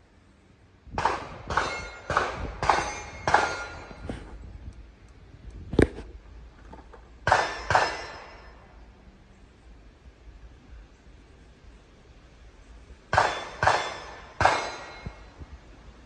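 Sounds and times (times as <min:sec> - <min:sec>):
gunshots with ringing tail: 0:13.1 - 0:15.1.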